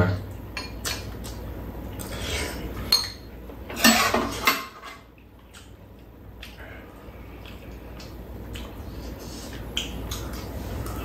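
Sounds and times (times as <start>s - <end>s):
utensils clinking against bowls: 2.9s - 5.1s.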